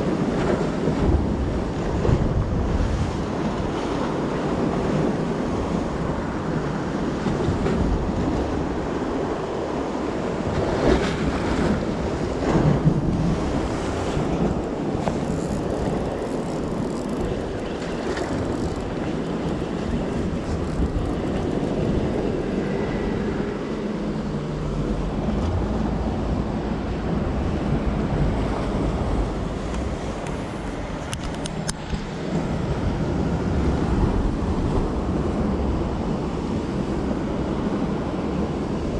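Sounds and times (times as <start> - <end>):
sea waves: 0.0 - 38.9
wind buffeting microphone: 0.0 - 38.9.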